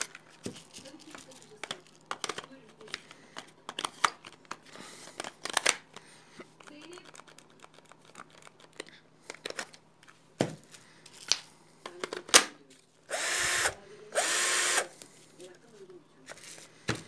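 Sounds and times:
cordless drill whining: 13.1s - 15.0s.

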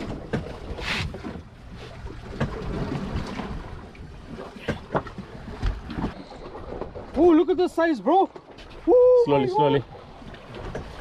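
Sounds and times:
boat engine rumble: 0.0s - 11.0s.

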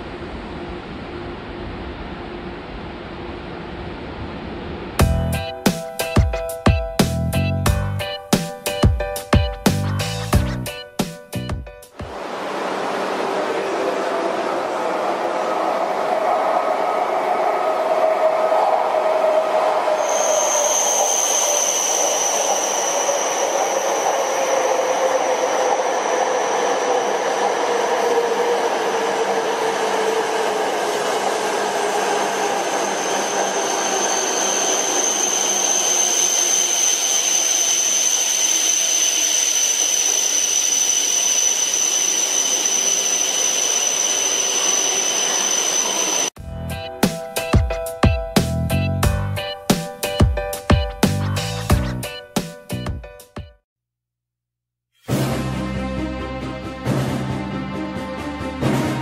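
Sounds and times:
high whine of train: 0.0s - 9.1s, 11.9s - 50.5s
bullet train rushing past: 11.9s - 50.8s.

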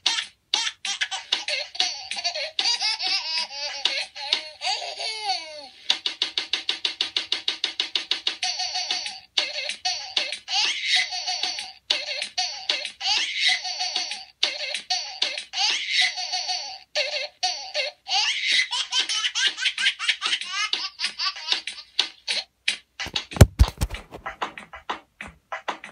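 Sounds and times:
loud sharp thumps: 23.1s - 24.4s.

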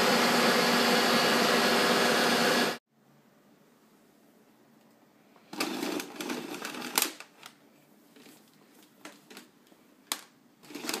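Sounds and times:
plastic vacuum cleaner rattling: 10.6s - 11.0s.

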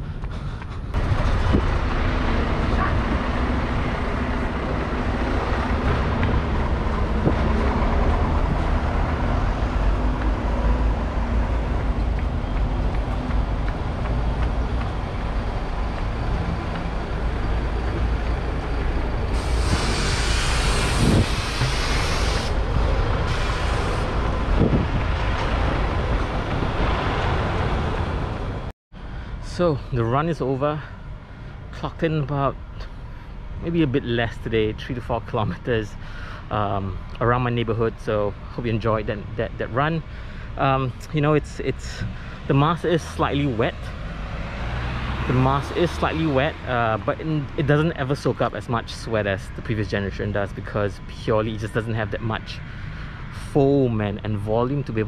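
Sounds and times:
road traffic passing: 0.0s - 55.0s
hiss: 19.3s - 22.6s, 23.3s - 24.1s.

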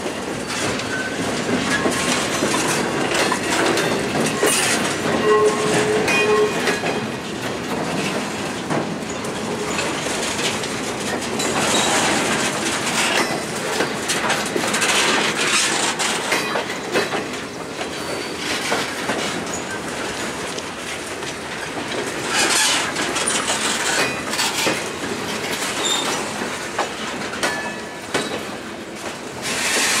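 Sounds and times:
train wheels rattling on rails: 0.0s - 30.0s
wheels clicking over rail joints: 0.0s - 30.0s
wheels squealing: 25.8s - 26.3s.

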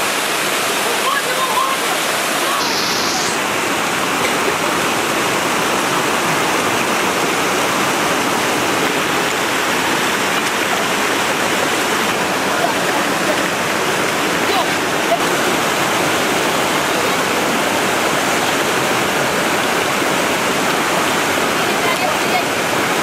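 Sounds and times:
waterfall rushing over rock: 0.0s - 23.0s.

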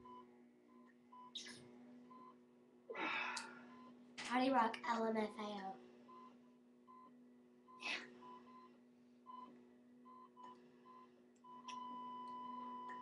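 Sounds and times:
faint electronic beeps: 0.0s - 2.4s, 3.5s - 4.0s, 6.0s - 13.0s
steady low hum: 0.0s - 13.0s.

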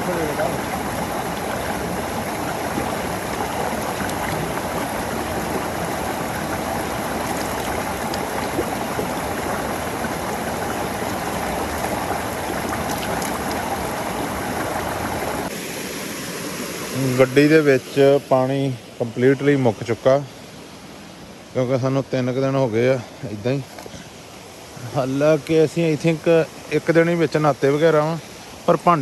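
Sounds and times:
waterfall rushing: 0.0s - 21.5s.

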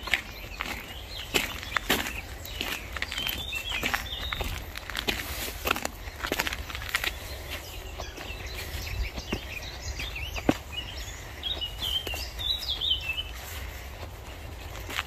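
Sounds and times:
small bird chirping: 0.0s - 4.8s, 6.0s - 13.6s
footsteps through long grass: 0.0s - 15.0s
wind rumbling on microphone: 2.6s - 13.4s.

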